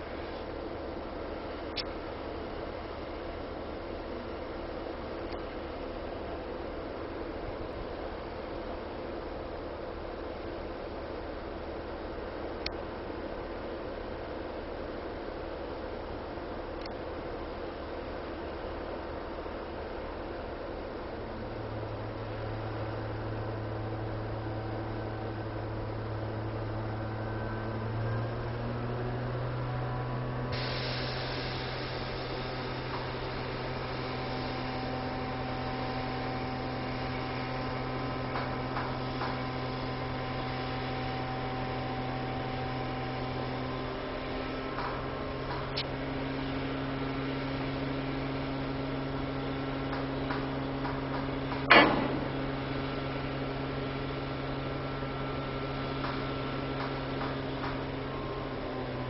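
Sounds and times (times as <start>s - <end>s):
electric hum: 51.3s - 57.0s
sharp knock: 51.6s - 52.4s.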